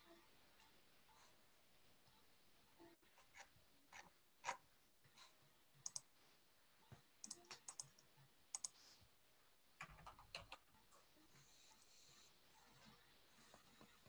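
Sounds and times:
faint irregular clicks: 5.8s - 6.1s, 7.2s - 8.8s.

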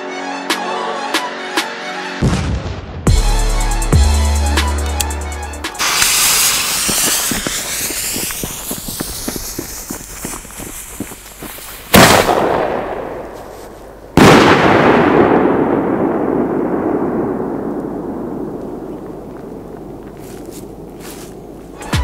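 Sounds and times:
fuse crackling: 4.7s - 14.6s
firework bangs: 5.8s - 20.0s.

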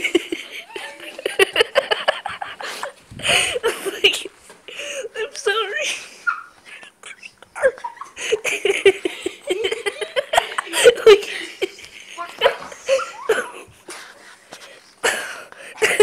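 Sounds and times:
people laughing and giggling: 0.0s - 4.8s, 7.2s - 14.1s, 15.0s - 16.0s.

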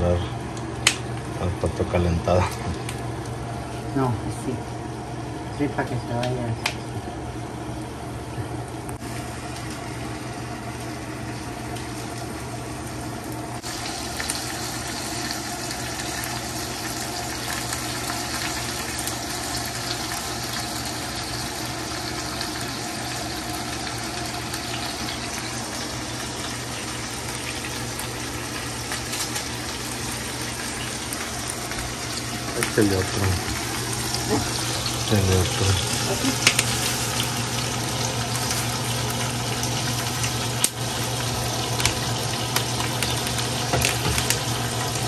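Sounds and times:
sausage sizzling in a pan: 9.0s - 45.0s.

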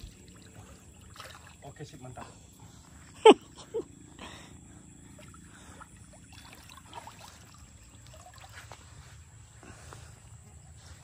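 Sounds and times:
small water splashes: 0.0s - 2.3s, 5.0s - 9.2s
water trickling: 0.0s - 2.6s, 5.0s - 9.2s.

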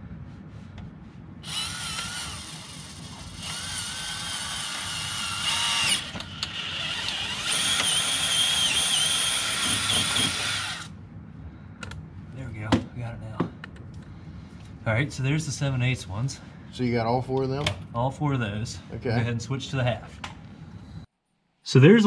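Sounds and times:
cordless drill whining: 1.4s - 10.9s.

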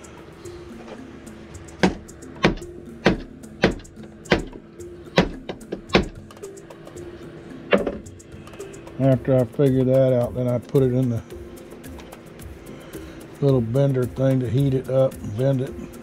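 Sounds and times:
soft background music: 0.0s - 16.0s
sharp knocks: 1.8s - 4.6s, 5.2s - 6.4s, 7.7s - 8.1s.

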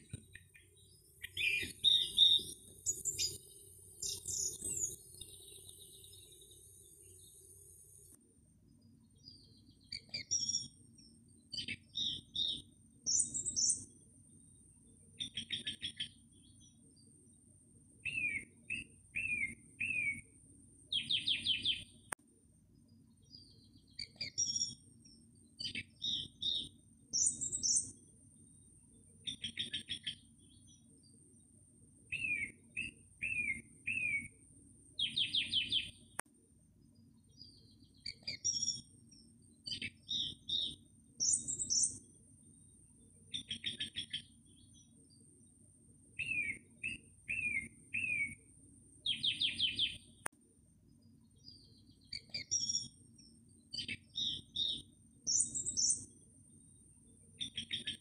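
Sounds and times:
small birds chirping and trilling: 0.0s - 22.1s, 22.8s - 36.2s, 36.8s - 50.2s, 50.8s - 58.0s.

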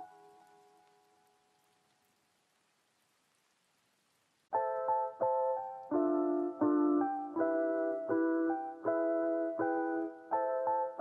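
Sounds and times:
soft electric piano chords: 0.0s - 1.2s, 4.5s - 11.0s.

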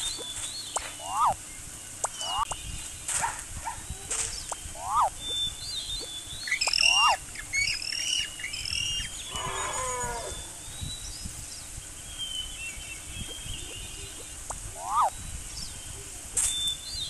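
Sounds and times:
birds chirping and whistling: 0.0s - 17.0s
falling animal call: 0.9s - 1.4s, 4.7s - 5.2s, 6.6s - 7.2s, 9.2s - 10.5s, 14.7s - 15.1s.

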